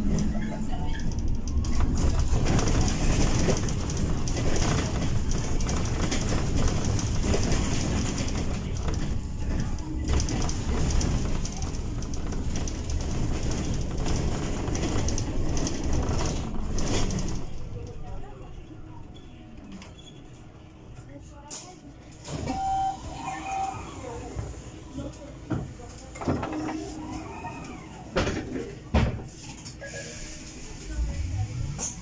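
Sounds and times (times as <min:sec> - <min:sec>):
tyres rumbling on road: 0:00.0 - 0:18.6.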